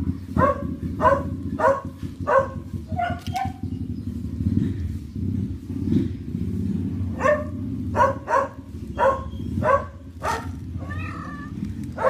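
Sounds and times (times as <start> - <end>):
low rattling rumble: 0.0 - 12.0
kitten meowing: 10.8 - 11.6.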